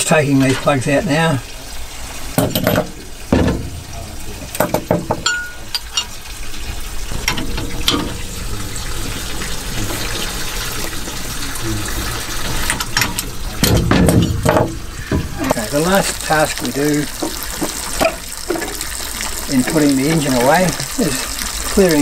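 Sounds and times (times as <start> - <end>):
water splashing: 0.0 - 22.0
metal tools clattering on floor: 2.4 - 3.5, 4.6 - 6.1, 12.6 - 14.7
metal clinks: 4.6 - 6.2.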